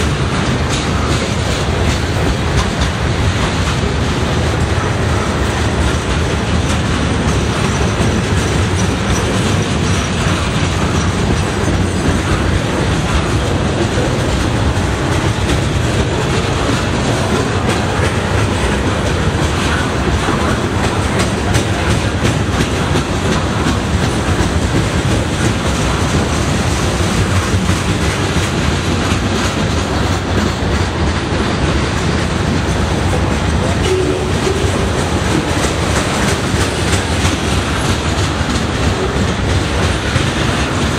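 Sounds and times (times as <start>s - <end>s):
freight train wheels clattering: 0.0s - 40.9s.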